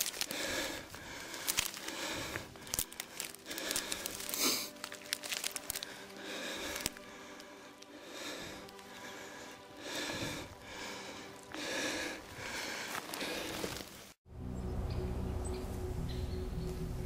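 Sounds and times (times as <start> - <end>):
stems snapping: 0.0 - 9.1, 12.4 - 14.0
dry bracken crackling and rustling: 0.0 - 9.2, 9.9 - 14.2.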